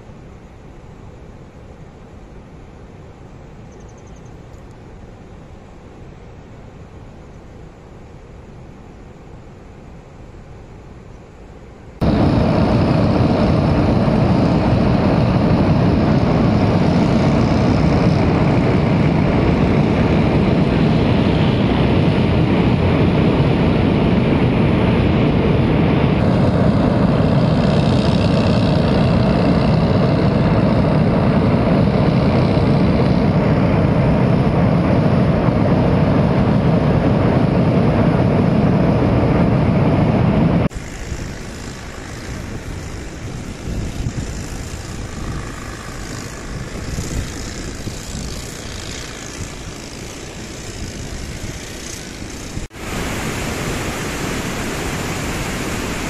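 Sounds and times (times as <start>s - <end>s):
floodwater roaring: 12.0s - 56.0s.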